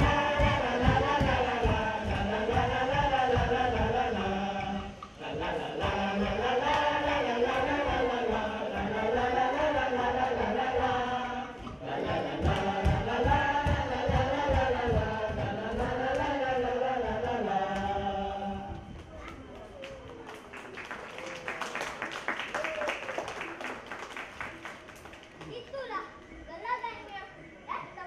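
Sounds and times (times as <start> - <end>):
children singing in unison: 0.0 - 19.1.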